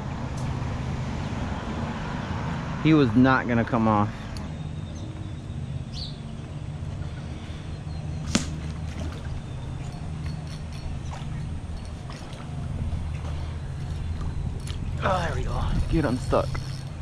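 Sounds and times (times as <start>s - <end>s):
steady low hum: 3.9s - 17.0s
blowgun shot: 8.2s - 8.7s.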